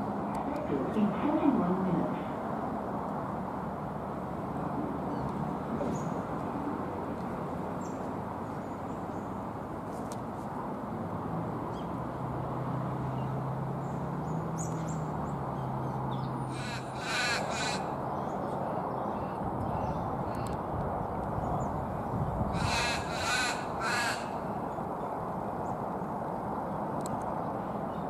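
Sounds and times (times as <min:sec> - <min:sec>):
outdoor background noise: 0:00.0 - 0:28.0
crow cawing: 0:16.5 - 0:18.0, 0:22.5 - 0:24.4.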